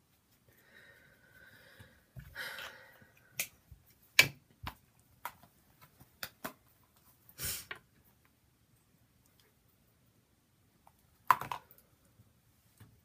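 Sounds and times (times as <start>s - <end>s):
containers clicking and knocking: 11.2s - 11.8s.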